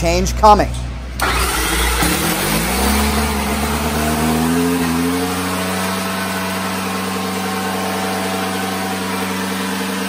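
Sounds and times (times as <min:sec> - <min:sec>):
motorcycle engine idling: 0:03.1 - 0:10.0.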